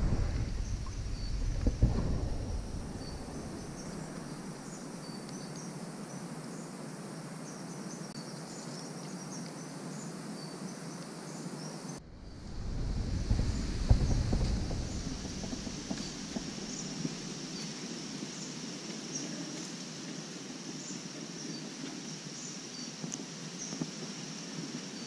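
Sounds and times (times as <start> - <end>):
wind rumble on microphone: 0.0 - 5.4, 12.0 - 22.1
insects chirping: 0.0 - 25.0
steady hiss: 0.0 - 25.0.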